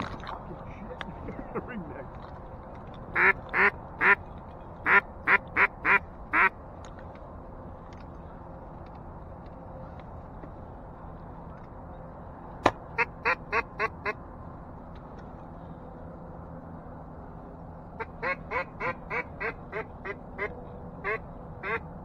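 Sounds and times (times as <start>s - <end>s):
duck quacking: 3.2s - 4.2s, 4.8s - 6.5s, 18.2s - 21.8s.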